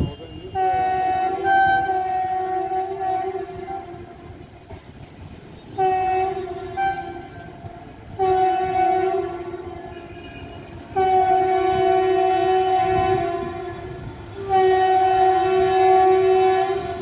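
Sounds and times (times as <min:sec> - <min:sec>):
train air horn blasts: 0:00.0 - 0:04.5, 0:05.5 - 0:17.0.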